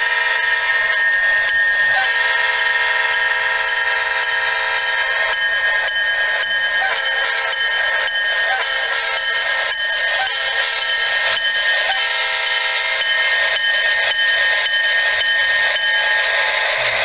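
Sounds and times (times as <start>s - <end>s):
model train wheels rattling: 0.0s - 17.0s
steady high tones: 0.0s - 17.0s.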